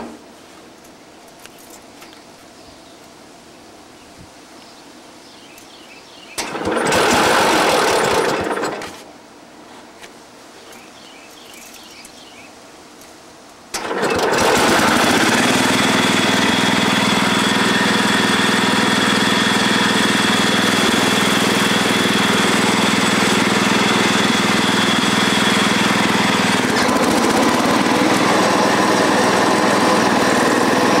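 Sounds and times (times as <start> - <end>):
lawn tractor engine running: 6.4 - 9.1, 13.7 - 31.0.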